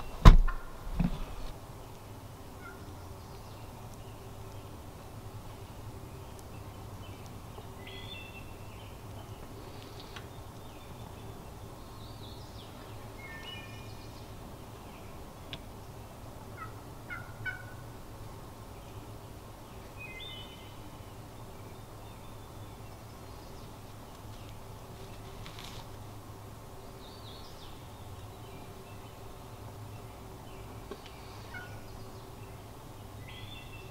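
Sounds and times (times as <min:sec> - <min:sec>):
turkey hen calling: 0:02.6 - 0:02.9, 0:16.6 - 0:17.9, 0:31.2 - 0:31.9.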